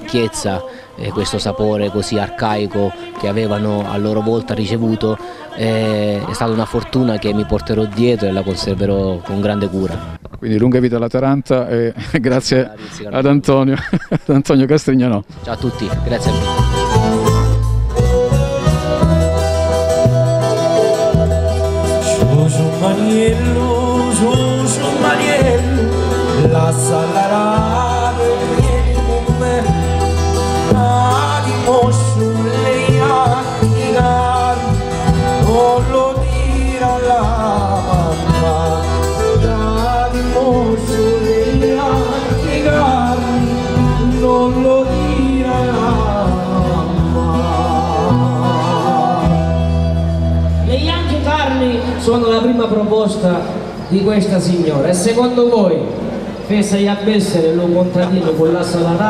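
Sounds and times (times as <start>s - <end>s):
man singing: 0.0s - 10.4s, 15.8s - 52.2s
accordion: 15.1s - 54.3s
plucked strings: 15.3s - 50.6s
electric bass: 15.3s - 52.6s.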